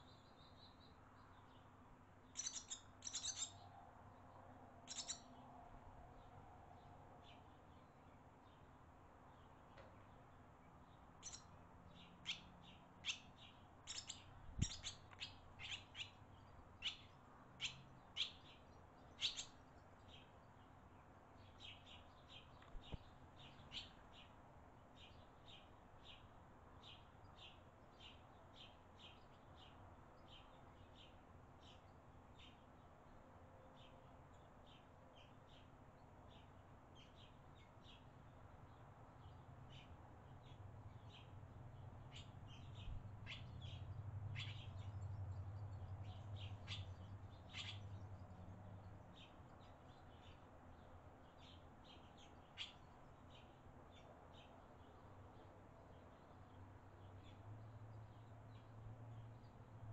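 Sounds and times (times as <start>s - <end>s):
swallows chirping: 2.3s - 5.3s, 9.3s - 24.4s, 36.3s - 59.5s.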